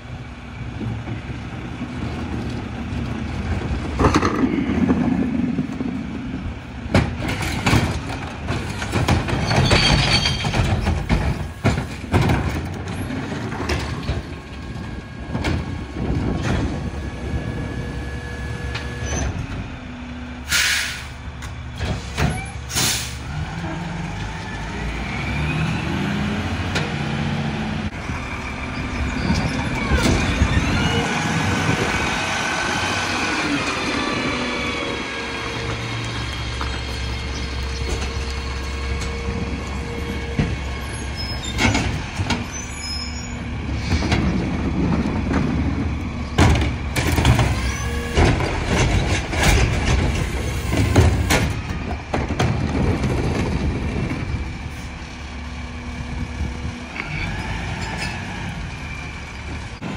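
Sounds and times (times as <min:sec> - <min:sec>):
air brake hisses: 0:20.5 - 0:21.2, 0:22.0 - 0:23.2
truck engine revving: 0:22.6 - 0:42.5.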